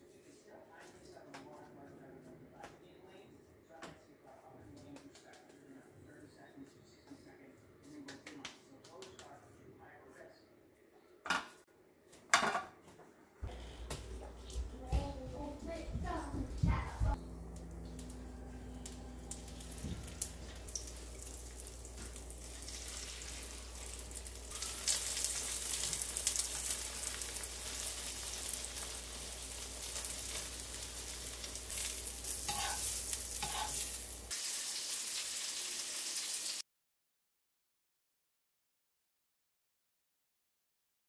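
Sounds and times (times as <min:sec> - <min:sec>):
oil sizzling in frying pan: 0:17.4 - 0:36.6.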